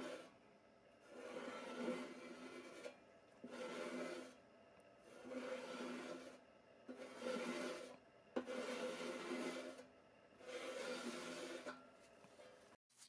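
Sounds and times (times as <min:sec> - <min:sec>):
sanding strokes on metal: 0:01.0 - 0:04.4, 0:05.0 - 0:11.8.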